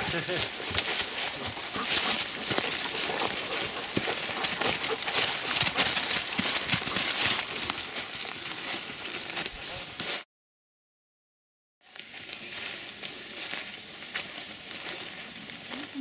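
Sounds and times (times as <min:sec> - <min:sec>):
footsteps crunching through dry leaves: 0:00.0 - 0:10.2, 0:11.8 - 0:16.0.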